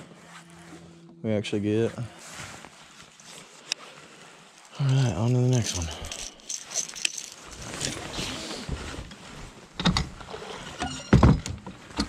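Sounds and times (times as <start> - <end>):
rustling and light clicks: 2.5 - 9.5.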